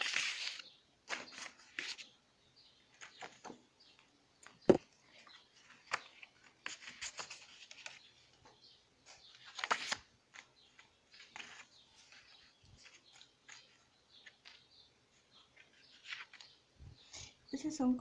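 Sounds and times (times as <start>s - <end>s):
paper rustling and sliding: 0.0s - 2.1s, 5.1s - 8.4s, 9.1s - 14.7s, 15.5s - 16.5s.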